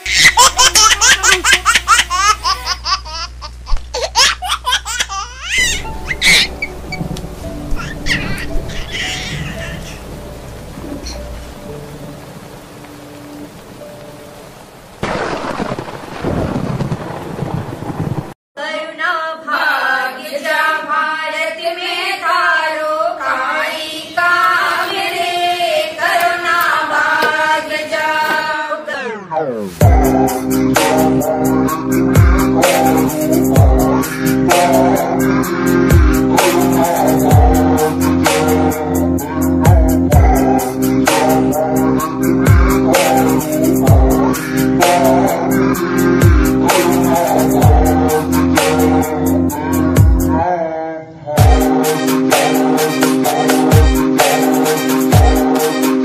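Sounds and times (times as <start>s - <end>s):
high-pitched giggling laughter: 0.0s - 6.7s, 7.8s - 10.0s
person singing chant-like melody: 23.1s - 56.0s
background music: 29.7s - 50.4s, 51.4s - 56.0s.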